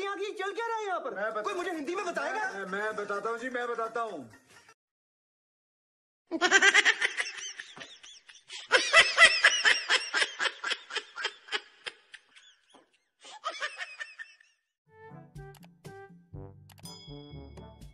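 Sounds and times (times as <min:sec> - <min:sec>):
high-pitched laughter: 0:06.3 - 0:12.6.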